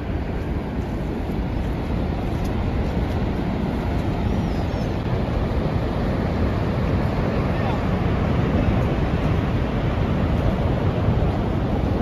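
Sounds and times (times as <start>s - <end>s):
waterfall rushing: 0.7s - 12.0s.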